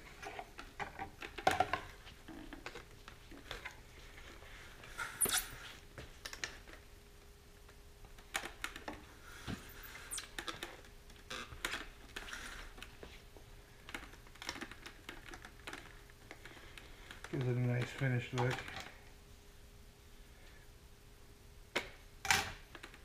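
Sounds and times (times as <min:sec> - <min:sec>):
tube rubbing squeak: 0:05.0 - 0:05.8.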